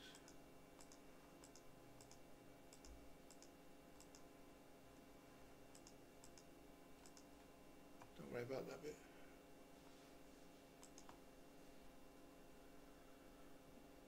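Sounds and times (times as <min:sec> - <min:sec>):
computer mouse clicks: 0:00.0 - 0:04.3, 0:05.7 - 0:07.3, 0:10.8 - 0:11.2
faint steady hum: 0:00.0 - 0:14.0.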